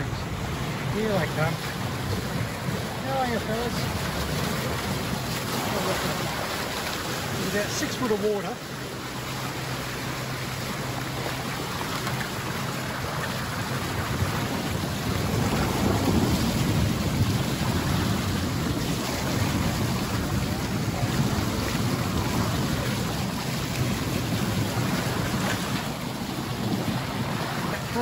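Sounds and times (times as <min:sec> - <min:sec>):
low engine hum: 0:00.0 - 0:28.0
water rushing along a hull: 0:00.0 - 0:28.0
wind on microphone: 0:09.6 - 0:28.0.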